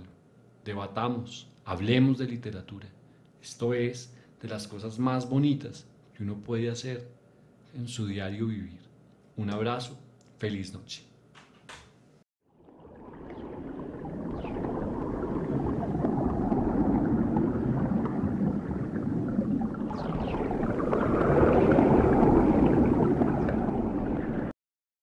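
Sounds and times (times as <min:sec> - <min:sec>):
watery rumbling swell: 0:12.5 - 0:24.5.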